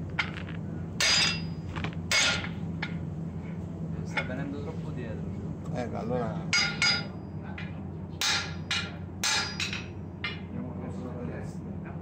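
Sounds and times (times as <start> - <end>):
hammer striking metal on anvil: 1.0 - 3.0, 6.5 - 10.5.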